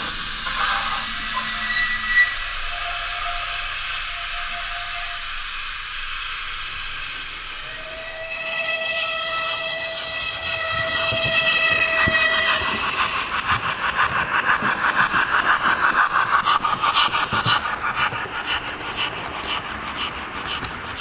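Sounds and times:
model train steam whistle: 0.0s - 13.1s
steam locomotive exhaust chuffs: 0.0s - 21.0s.

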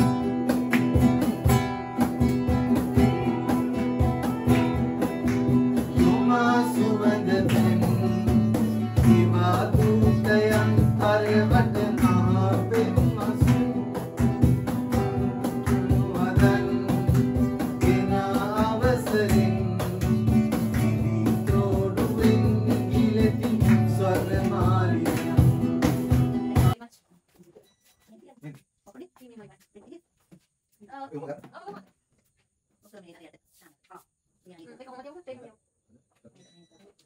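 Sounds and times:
acoustic guitar strumming: 0.0s - 26.8s
person singing: 2.8s - 14.1s, 15.1s - 25.8s.

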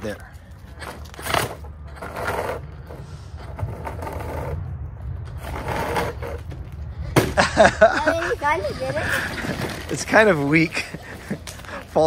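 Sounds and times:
toy truck motor whirring: 0.8s - 4.6s.

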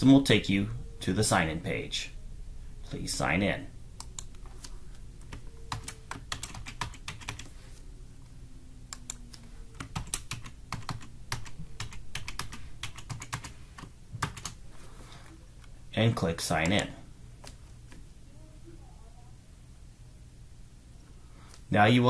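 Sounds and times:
typing on computer keyboard: 5.3s - 7.5s, 9.8s - 14.6s.

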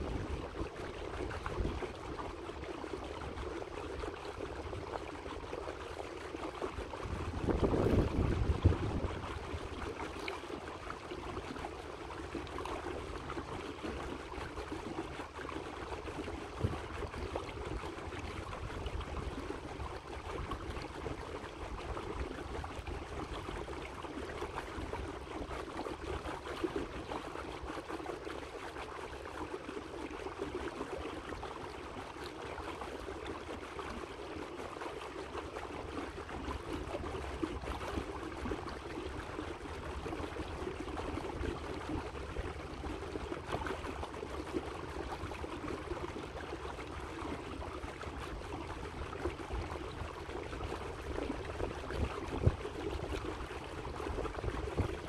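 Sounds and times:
water lapping against boat hull: 0.0s - 55.0s.

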